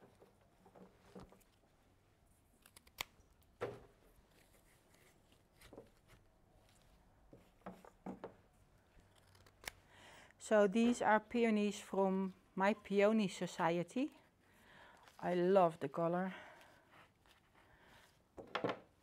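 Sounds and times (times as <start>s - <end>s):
soft handling clicks and knocks: 5.6s - 8.5s.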